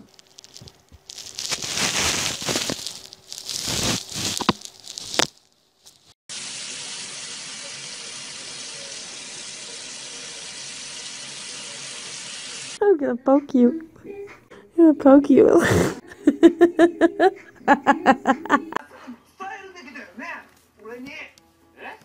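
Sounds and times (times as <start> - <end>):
loud rustling: 0.0 - 6.1
water running from a tap: 6.3 - 12.8.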